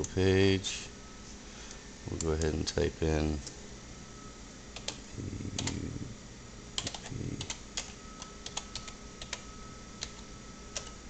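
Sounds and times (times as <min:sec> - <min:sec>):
keyboard typing clicks: 0:04.8 - 0:05.0, 0:05.6 - 0:05.8, 0:06.8 - 0:11.0.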